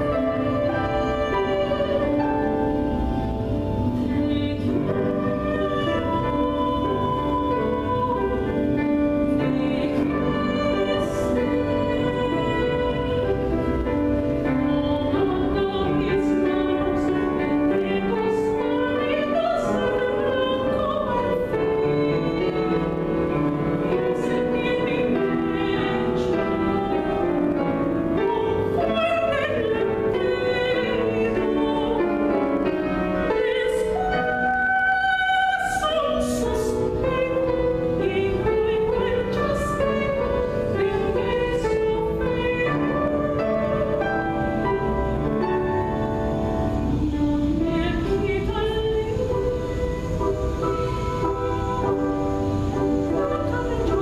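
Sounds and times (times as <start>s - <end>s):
grand piano: 0.0s - 54.0s
woman singing opera: 0.0s - 54.0s.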